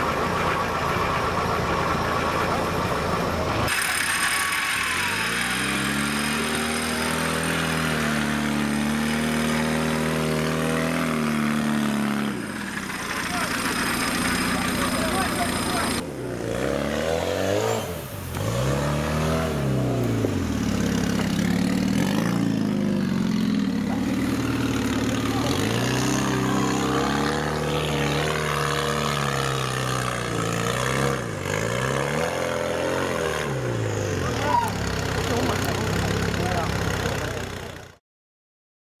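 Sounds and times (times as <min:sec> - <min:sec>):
engine revving: 0:00.0 - 0:38.0.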